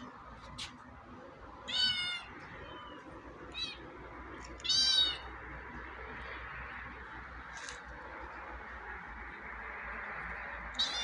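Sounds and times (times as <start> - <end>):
kittens meowing: 1.7 - 3.9, 4.5 - 5.3, 10.7 - 11.0.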